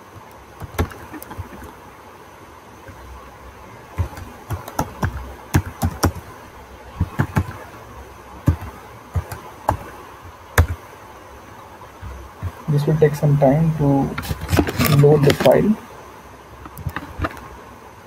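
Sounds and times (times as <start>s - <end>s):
computer keyboard typing: 0.2s - 1.7s, 4.0s - 6.3s, 7.0s - 7.6s, 8.4s - 9.9s, 10.6s - 10.8s.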